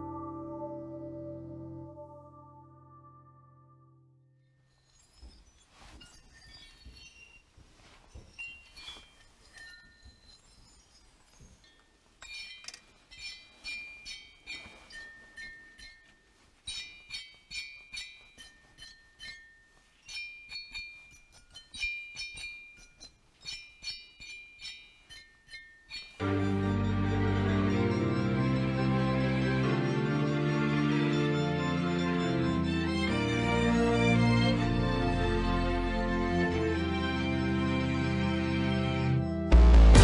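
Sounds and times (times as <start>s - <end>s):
glassy clinks of crystals: 4.6s - 26.5s.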